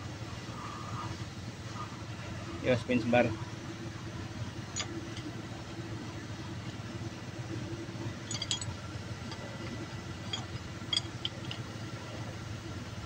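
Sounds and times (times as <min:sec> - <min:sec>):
steady low hum: 0:00.0 - 0:13.0
light metallic clinks of tools: 0:08.2 - 0:11.7.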